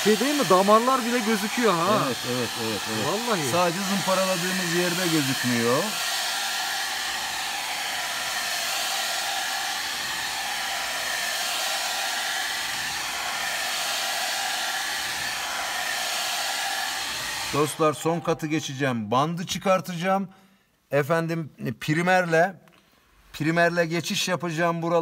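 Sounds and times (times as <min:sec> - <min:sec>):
hair dryer blowing: 0:00.0 - 0:18.6.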